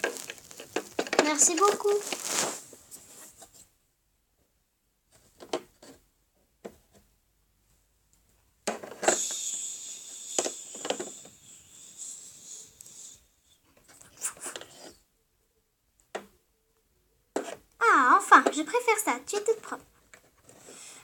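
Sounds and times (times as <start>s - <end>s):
toy shower spraying hiss: 0.0s - 2.6s, 9.0s - 13.3s.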